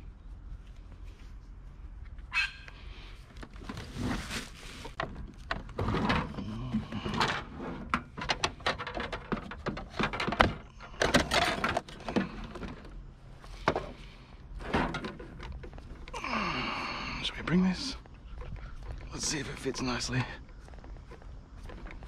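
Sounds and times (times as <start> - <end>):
junk knocking and scraping: 3.4 - 16.2.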